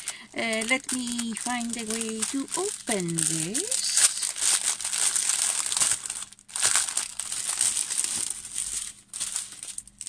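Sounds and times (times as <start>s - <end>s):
plastic packaging crinkling: 0.0s - 10.0s.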